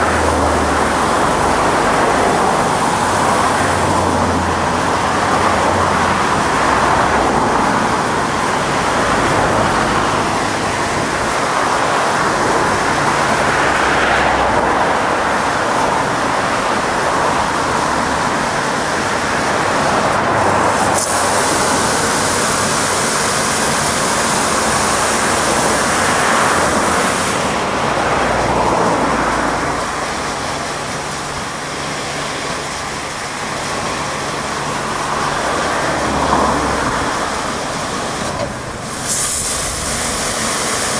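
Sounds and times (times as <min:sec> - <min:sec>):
car wash machine hum: 0:00.0 - 0:40.9
water spraying: 0:00.0 - 0:40.9
high hiss: 0:20.7 - 0:27.6, 0:37.0 - 0:40.9.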